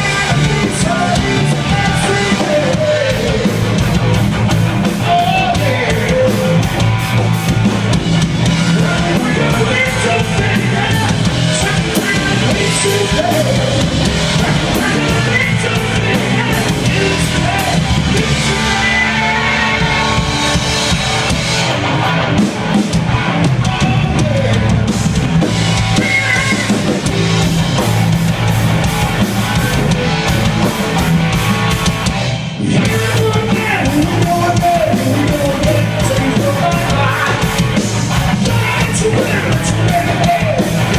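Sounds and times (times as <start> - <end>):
man singing: 0.0 - 3.9, 4.8 - 6.8, 8.4 - 20.2, 23.4 - 24.9, 25.8 - 27.4, 32.6 - 40.9
bass guitar: 0.0 - 40.9
drum kit beat: 0.0 - 40.9
electric guitars: 0.0 - 40.9.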